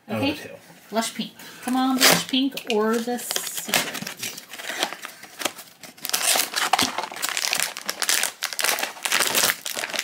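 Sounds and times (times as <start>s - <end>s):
foil bag crinkling: 2.9s - 10.0s.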